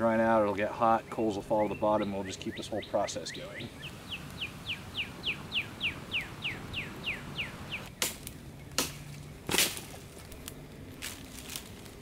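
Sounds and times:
songbird singing falling notes: 0.5 - 9.4
dead sticks snapping: 7.9 - 11.7.

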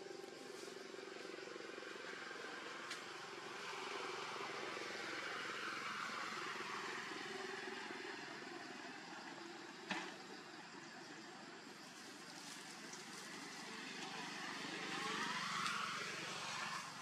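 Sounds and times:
outdoor background hum: 0.0 - 17.0.

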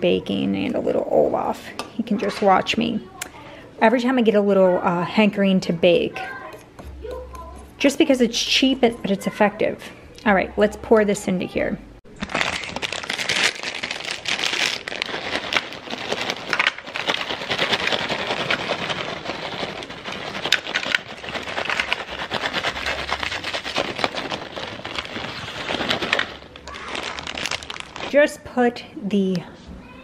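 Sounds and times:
foil bag crinkling: 12.1 - 28.3.

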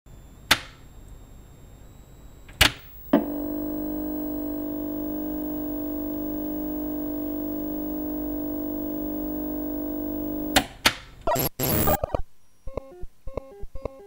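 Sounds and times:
droning tone of held notes: 3.1 - 10.6.

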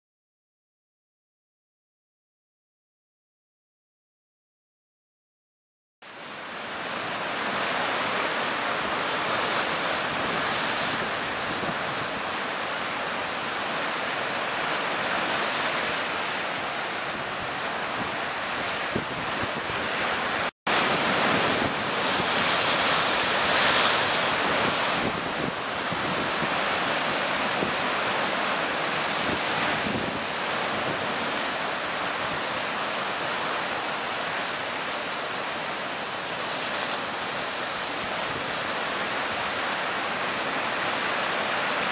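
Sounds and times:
waves breaking on rocks: 6.2 - 41.9
wind buffeting microphone: 17.0 - 28.2, 29.0 - 31.5.

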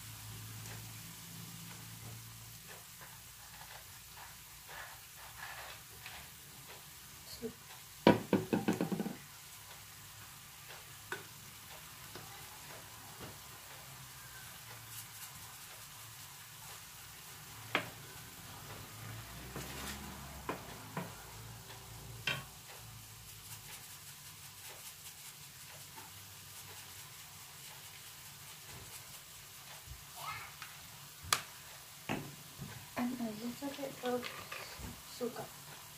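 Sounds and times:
meat sizzling in a pan: 0.0 - 35.9
utensils knocking against pan: 8.0 - 9.2, 22.2 - 22.6.

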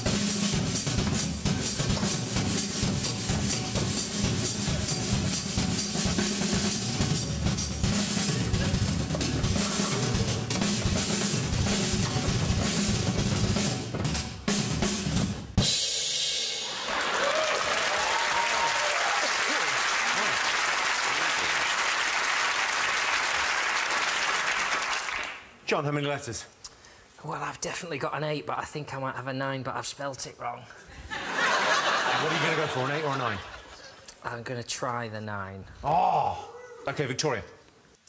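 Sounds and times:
drum kit played fast: 0.0 - 17.0
applause: 16.7 - 25.5.

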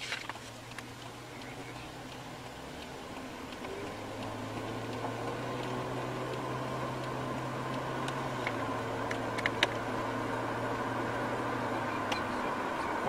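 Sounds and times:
car road and engine noise: 0.0 - 13.0
sharp ticks: 0.3 - 10.8.

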